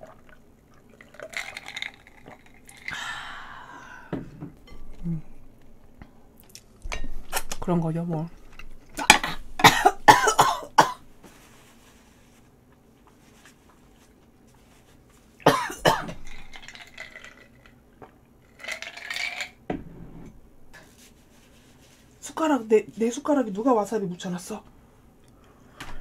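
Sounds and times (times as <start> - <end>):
woman coughing: 9.0 - 11.0, 15.5 - 16.2.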